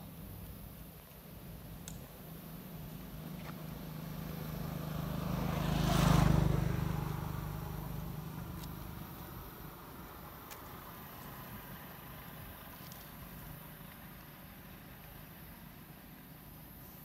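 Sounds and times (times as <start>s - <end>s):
vehicle engine driving past: 3.0s - 12.7s.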